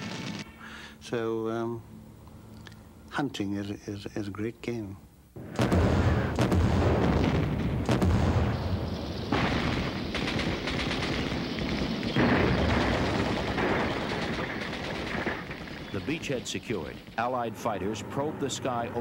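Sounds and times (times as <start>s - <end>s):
rapid gunfire: 5.4s - 17.2s.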